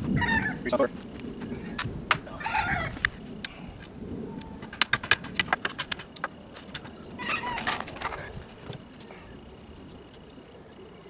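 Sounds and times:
wooden boards clicking and knocking: 4.6s - 6.9s.

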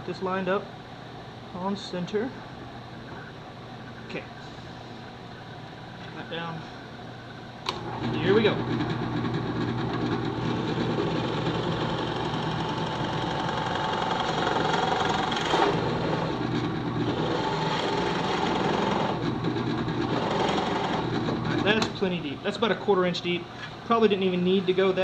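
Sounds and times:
drill press boring wood: 7.7s - 21.7s.

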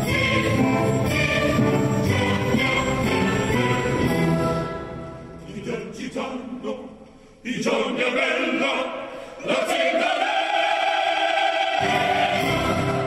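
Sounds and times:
orchestra playing: 0.0s - 5.4s, 11.8s - 13.0s
mixed choir singing: 0.0s - 13.0s.

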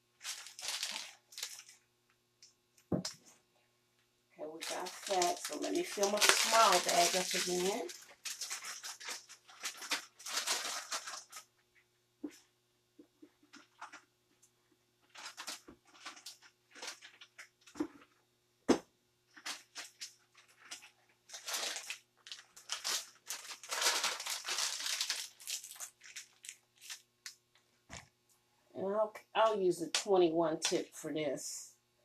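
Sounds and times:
plastic bag crinkling: 0.2s - 1.8s, 4.4s - 11.5s, 15.0s - 18.0s, 19.3s - 27.4s.

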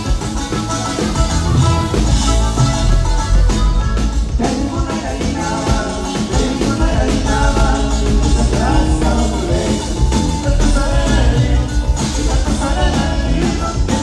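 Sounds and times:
band playing live: 0.0s - 14.0s
person singing: 4.3s - 14.0s.

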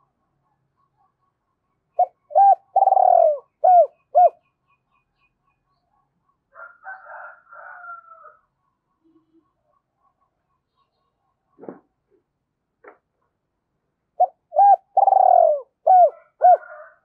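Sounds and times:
dove cooing: 2.0s - 4.4s, 14.2s - 17.0s.

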